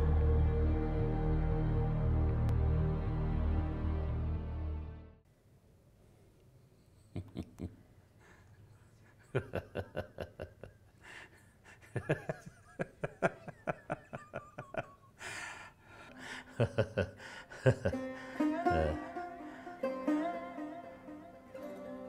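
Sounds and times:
man laughing: 7.1 - 7.8, 9.2 - 10.9, 11.7 - 20.2
gasping in-breath: 11.0 - 11.9, 15.2 - 16.6, 17.2 - 18.6.

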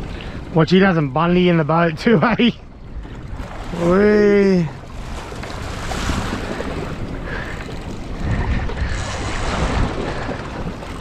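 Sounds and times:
choppy sea water: 0.0 - 11.0
wind rushing over microphone: 2.7 - 11.0.

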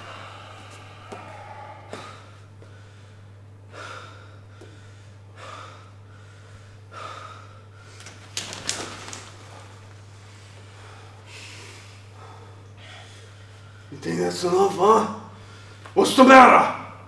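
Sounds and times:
heavy laboured breathing: 0.0 - 8.2, 9.5 - 14.0.

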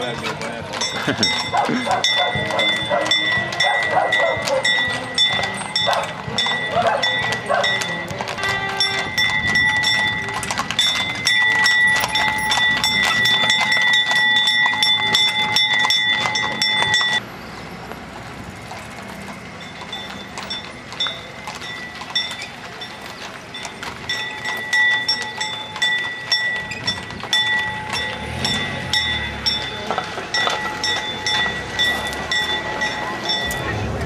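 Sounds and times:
horse hooves clip-clopping on road: 0.0 - 34.0
steady high ringing: 19.5 - 34.0.

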